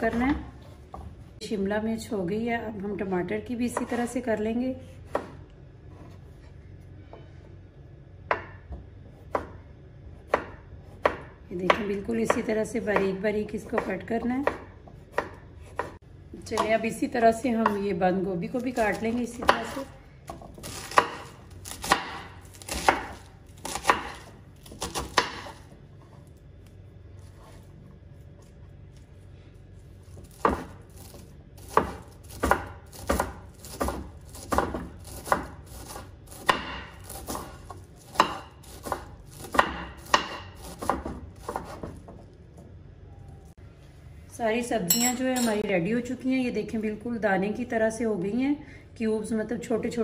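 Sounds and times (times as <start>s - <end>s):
knife chopping on cutting board: 8.3s - 9.6s, 10.2s - 16.0s, 18.8s - 26.2s, 30.1s - 42.2s.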